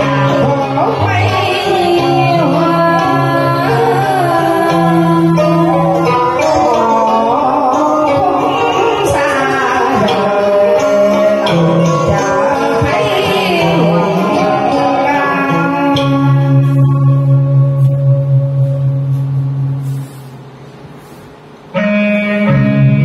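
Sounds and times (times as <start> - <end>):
person singing into a microphone: 0.0 - 20.1
instrumental backing track: 0.0 - 23.0.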